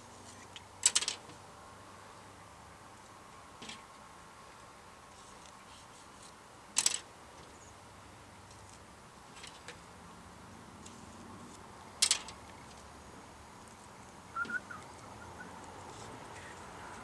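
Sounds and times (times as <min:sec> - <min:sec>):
high double chirp: 0:14.3 - 0:15.6.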